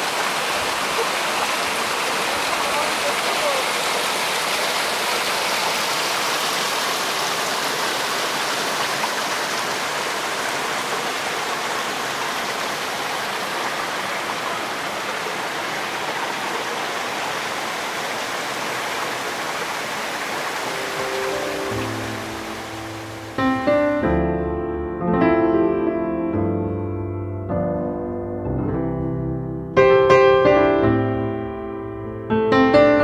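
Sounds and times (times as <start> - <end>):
creek water rushing over boulders: 0.0 - 23.6.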